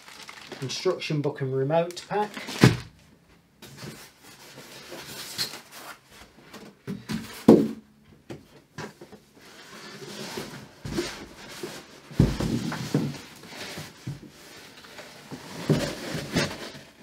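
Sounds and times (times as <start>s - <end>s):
packaging rustling: 0.0s - 1.0s, 1.9s - 3.0s
box knocks and thumps: 6.9s - 7.8s, 12.1s - 13.2s.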